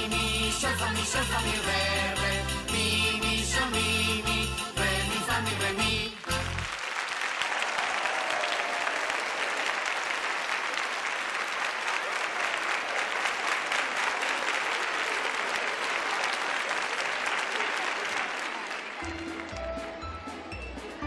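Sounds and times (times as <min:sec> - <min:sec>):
audience applauding: 0:06.0 - 0:21.0.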